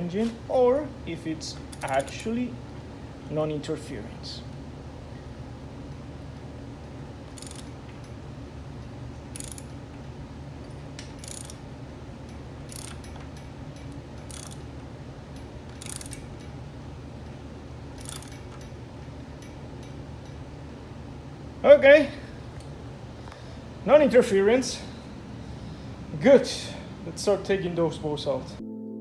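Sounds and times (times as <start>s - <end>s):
steady low hum: 0.0s - 29.0s
ratchet wrench clicking: 1.7s - 2.3s, 7.3s - 8.2s, 9.3s - 9.8s, 10.6s - 11.6s, 12.3s - 14.7s, 15.4s - 16.6s, 18.0s - 18.8s.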